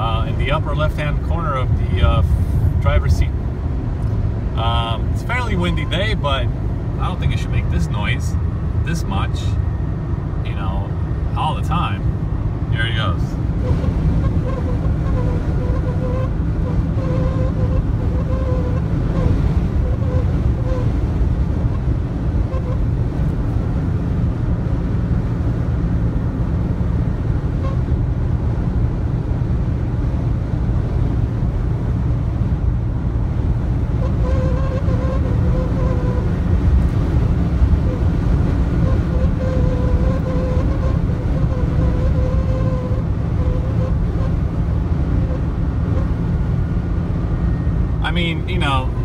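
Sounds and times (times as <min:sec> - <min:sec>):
road and wind rumble: 0:00.0 - 0:49.0
wind whistling at car door: 0:13.4 - 0:48.0.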